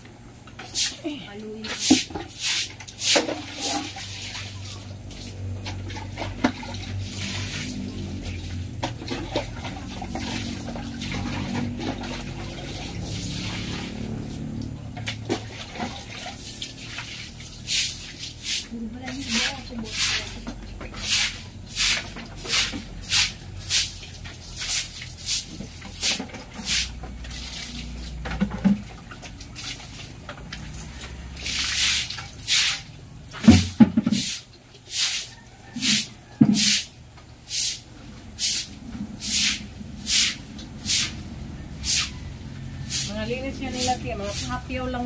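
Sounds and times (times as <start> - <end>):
broom sweeping a wet floor: 0.6 - 28.8, 29.4 - 45.0.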